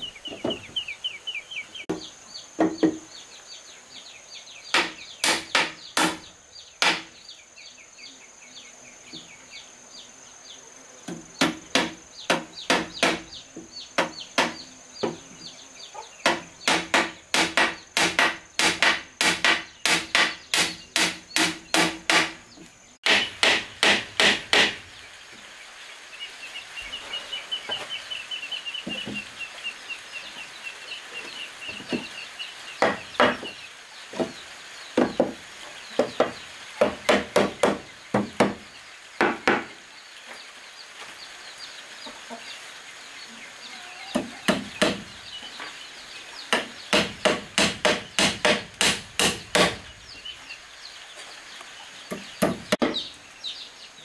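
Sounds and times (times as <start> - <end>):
hammer driving nails into wood: 4.8 - 6.2, 6.8 - 7.1, 16.3 - 22.4, 23.0 - 24.8, 46.5 - 49.8.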